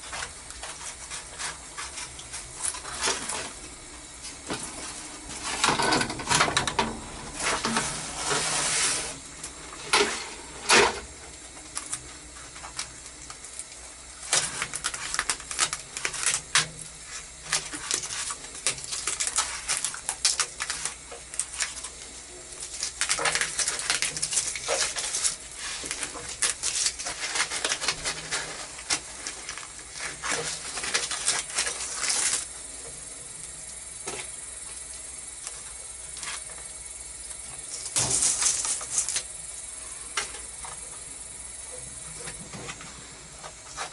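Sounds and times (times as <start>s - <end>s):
tape tearing and rustling: 14.2s - 32.5s, 37.7s - 39.3s.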